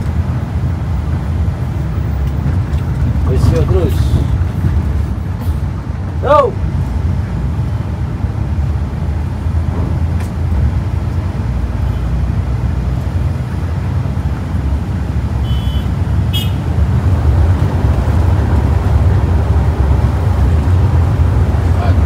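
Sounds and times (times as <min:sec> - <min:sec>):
bus engine and road rumble: 0:00.0 - 0:22.0.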